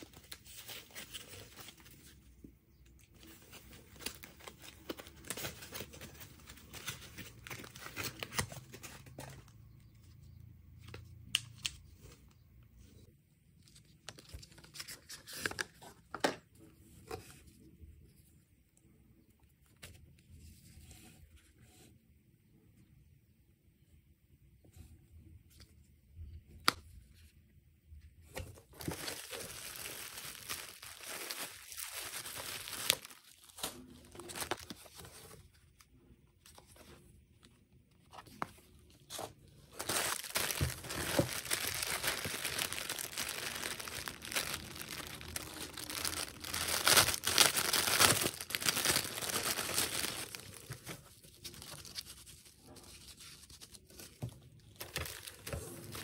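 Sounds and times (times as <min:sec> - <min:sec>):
plastic packaging crinkling: 0:28.7 - 0:35.3, 0:39.7 - 0:56.0.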